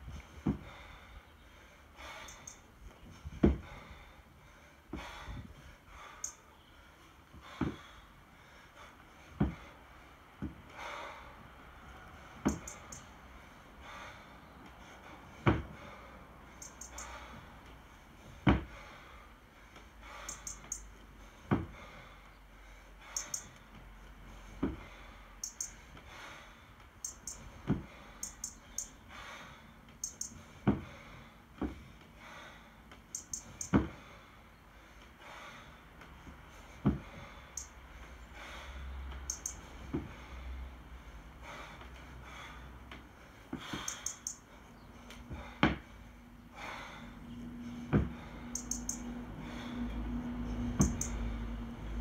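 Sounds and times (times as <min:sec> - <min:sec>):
short sharp breaths: 0:00.0 - 0:52.0
kettlebell thudding on wood: 0:03.4 - 0:03.7, 0:07.6 - 0:07.8, 0:09.4 - 0:09.6, 0:12.4 - 0:12.8, 0:15.4 - 0:15.8, 0:18.4 - 0:18.8, 0:21.5 - 0:21.8, 0:24.6 - 0:24.8, 0:30.6 - 0:30.9, 0:33.7 - 0:34.0, 0:36.8 - 0:37.1, 0:45.3 - 0:45.9, 0:47.9 - 0:48.2.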